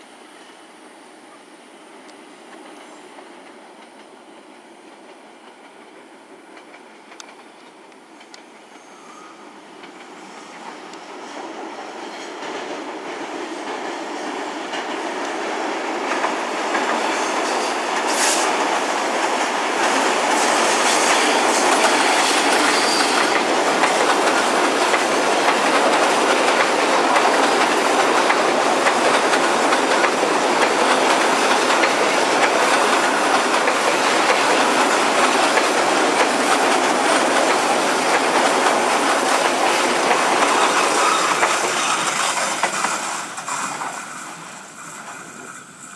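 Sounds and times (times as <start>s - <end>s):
train wheels clattering on bridge: 9.8s - 45.7s.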